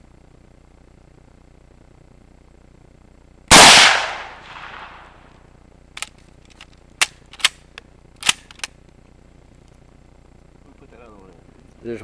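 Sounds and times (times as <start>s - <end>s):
rifle shot echoing: 3.5s - 5.3s
rifle bolt clicks: 6.0s - 8.8s.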